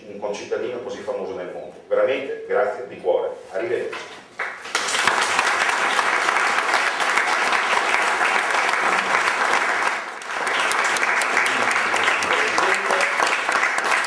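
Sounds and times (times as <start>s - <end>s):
audience applauding: 4.4s - 14.0s.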